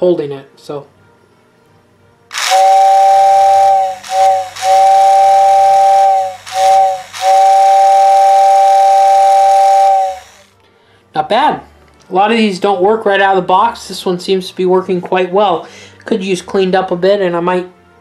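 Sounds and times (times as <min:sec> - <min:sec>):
toy train whistle two-note chord: 0:02.3 - 0:10.6.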